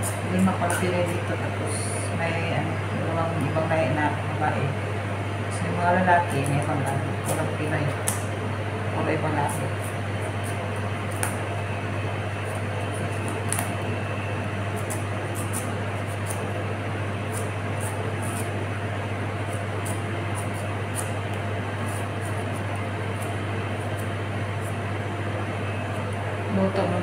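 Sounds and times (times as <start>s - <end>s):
kitchen equipment humming: 0.0s - 27.0s
knife scraping gourd skin: 14.7s - 16.5s, 17.2s - 18.6s, 19.4s - 21.2s, 21.8s - 24.8s.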